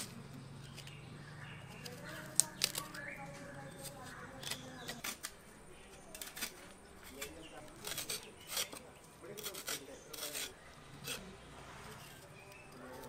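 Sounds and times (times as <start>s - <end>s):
knife scraping tuber skin: 3.7s - 13.0s.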